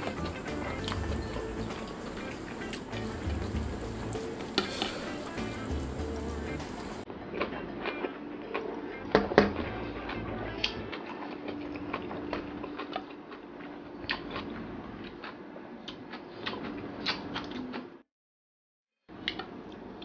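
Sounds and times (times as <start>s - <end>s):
faint steady hum: 0.0s - 7.0s
fingers mixing rice on steel plate: 0.0s - 7.0s
wet chewing and lip smacks: 11.0s - 13.4s, 14.0s - 17.9s.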